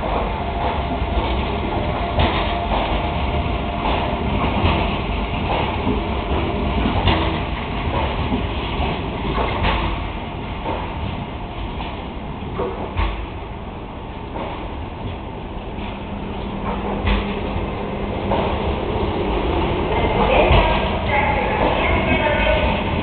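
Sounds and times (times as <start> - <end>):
train rumbling past: 0.0 - 23.0
wheels clacking: 14.2 - 23.0.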